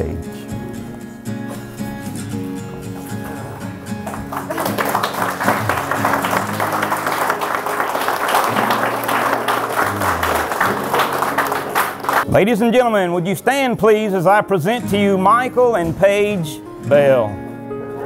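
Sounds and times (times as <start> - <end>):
soft background music: 0.0 - 18.0
guests applauding: 3.1 - 12.3.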